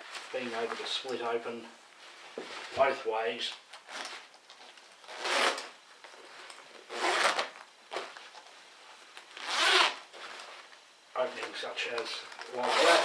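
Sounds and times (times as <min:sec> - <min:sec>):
zipper strokes: 0:05.1 - 0:05.7, 0:06.9 - 0:08.0, 0:09.4 - 0:10.4, 0:12.6 - 0:13.0.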